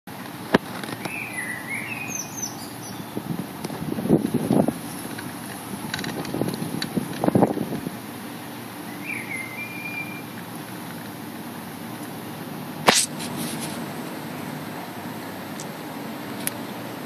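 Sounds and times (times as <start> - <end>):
outdoor hiss: 0.1 - 17.0
wind buffeting microphone: 2.7 - 8.0
sharp click: 12.8 - 13.7.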